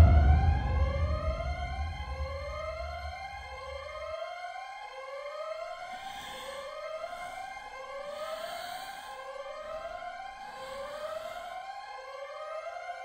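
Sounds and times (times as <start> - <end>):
low rumble: 0.0 - 4.1
synthesized rising siren tone: 0.0 - 4.2.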